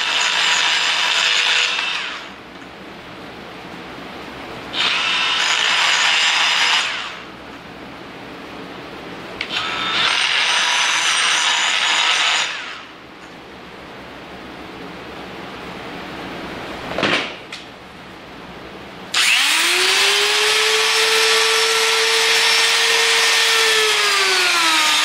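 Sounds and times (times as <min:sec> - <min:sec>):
die grinder grinding steel: 0:00.0 - 0:02.3, 0:04.7 - 0:07.2, 0:09.5 - 0:12.8, 0:19.2 - 0:25.0.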